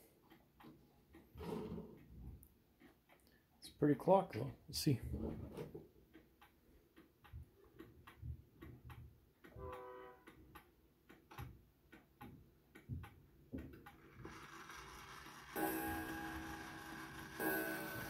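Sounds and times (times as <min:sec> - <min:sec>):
clock ticking: 0:00.0 - 0:01.4, 0:02.0 - 0:05.0, 0:06.0 - 0:14.1.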